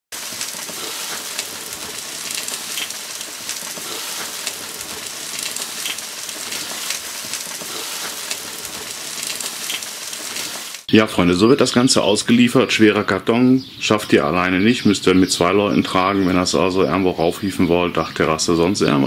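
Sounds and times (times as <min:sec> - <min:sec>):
meat sizzling on a grill: 0:00.1 - 0:10.9.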